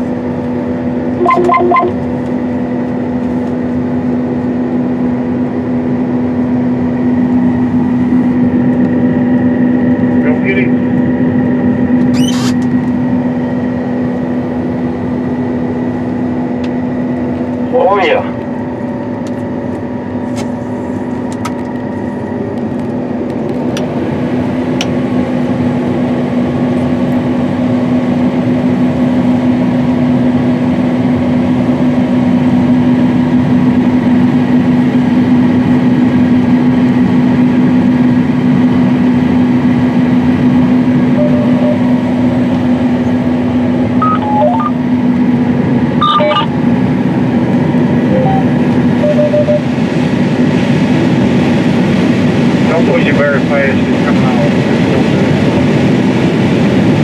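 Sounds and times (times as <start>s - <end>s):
combine harvester engine drone: 0.0s - 57.0s
short electronic beeps: 1.2s - 2.0s, 41.1s - 42.0s, 44.0s - 44.8s, 46.0s - 46.5s, 48.1s - 49.7s.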